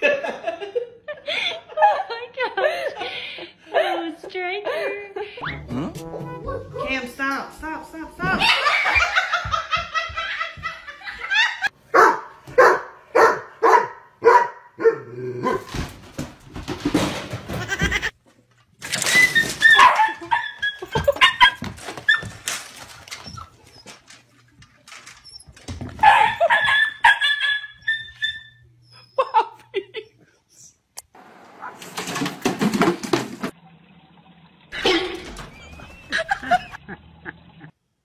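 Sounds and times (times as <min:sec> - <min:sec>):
dog barking: 0:11.9 - 0:15.7, 0:26.0 - 0:27.6.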